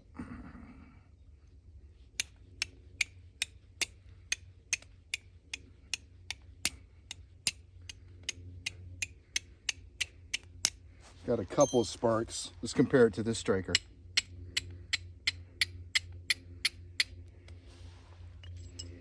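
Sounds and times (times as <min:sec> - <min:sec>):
steel striker clicking on flint: 0:02.1 - 0:10.9, 0:13.4 - 0:17.6.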